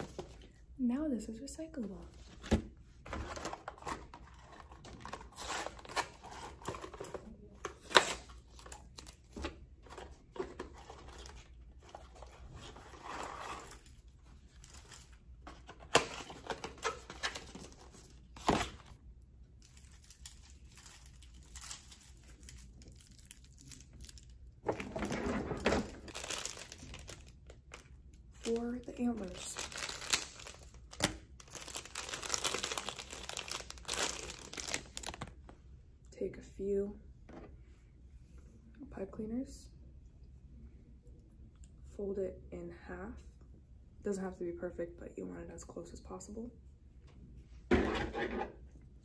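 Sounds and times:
plastic wrappers crinkling: 19.6 - 25.2, 25.8 - 35.4.

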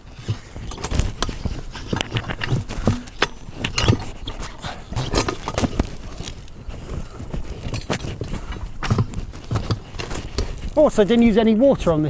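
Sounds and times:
metal scraping: 0.0 - 6.5
metal clanks and knocks: 0.2 - 4.1.

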